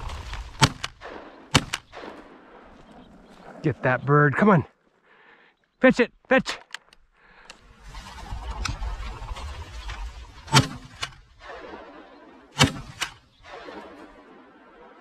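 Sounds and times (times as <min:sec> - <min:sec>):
shotgun blasts: 0:00.0 - 0:02.7, 0:10.4 - 0:14.4.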